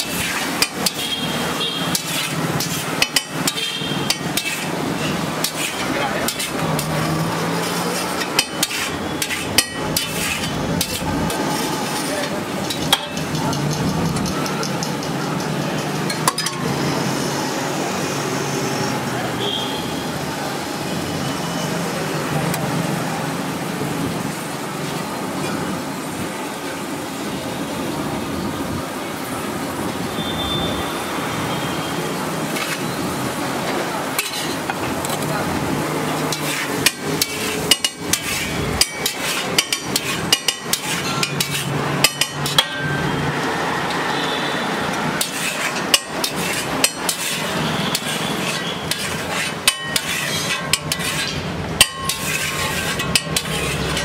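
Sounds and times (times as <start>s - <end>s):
metal spatula clanking on griddle: 0.0s - 16.8s, 34.1s - 35.3s, 36.1s - 43.1s, 45.2s - 54.0s
street traffic noise: 0.0s - 54.0s.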